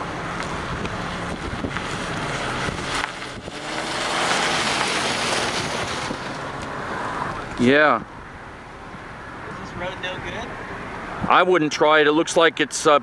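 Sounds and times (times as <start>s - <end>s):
wind buffeting microphone: 0.2s - 6.6s.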